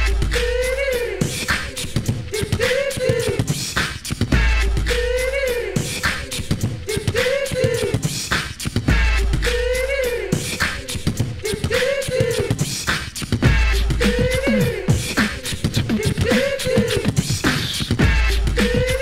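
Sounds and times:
wavering vocal line: 0.0s - 3.7s, 4.5s - 8.3s, 9.0s - 19.0s
looping drum beat: 0.0s - 19.0s.

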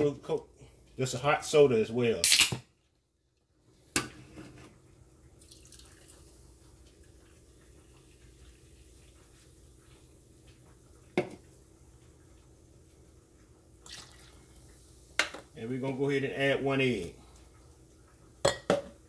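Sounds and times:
liquid trickling into a bowl: 5.3s - 9.2s, 13.8s - 14.8s.

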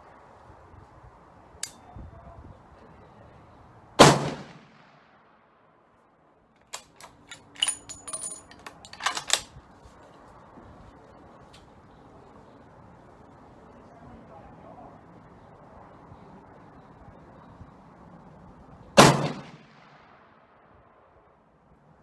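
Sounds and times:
rifle bolt metallic clicks: 1.6s - 1.8s, 6.6s - 9.6s
rifle shot with ringing tail: 4.0s - 5.1s, 19.0s - 20.1s.

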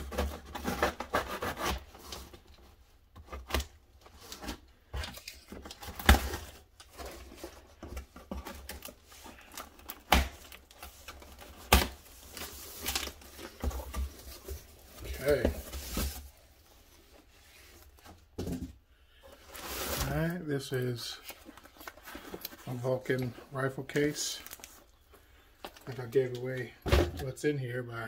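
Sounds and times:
cardboard scraping and rubbing: 0.0s - 2.2s.

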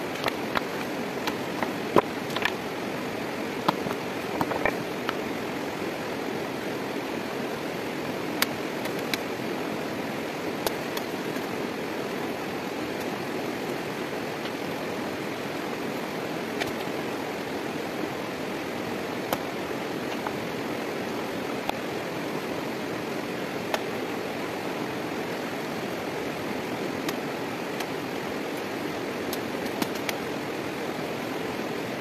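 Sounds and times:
stones clicking and knocking: 0.2s - 2.6s, 3.6s - 5.2s.

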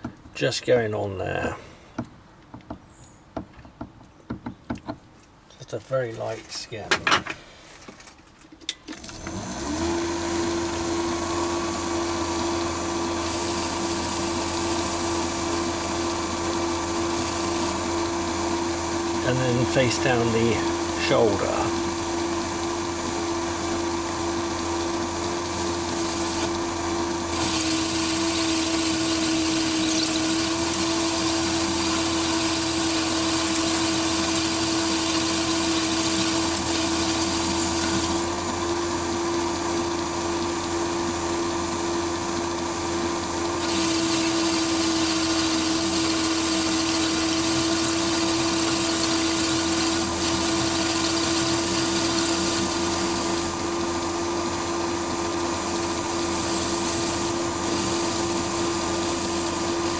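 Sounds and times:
lathe motor hum and whine: 9.0s - 59.9s
turning tool cutting metal: 12.8s - 18.0s, 25.2s - 26.6s, 27.2s - 38.4s, 43.6s - 53.7s, 55.7s - 59.7s.

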